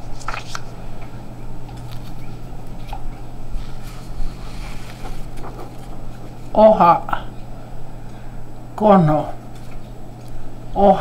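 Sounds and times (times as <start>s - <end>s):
faint clicks and rustles: 0.0s - 6.6s
low hum: 0.0s - 11.0s.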